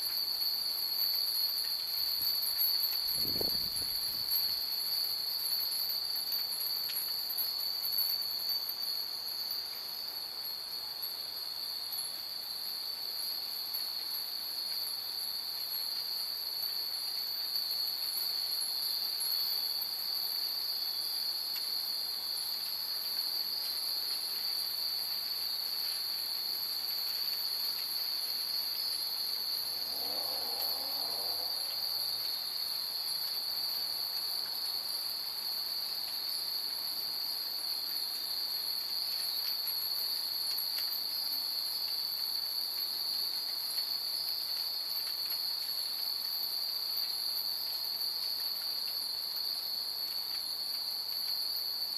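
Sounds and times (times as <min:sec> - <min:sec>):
high-pitched insect trill: 0:00.0 - 0:51.9
wind chimes tinkling: 0:00.1 - 0:10.6.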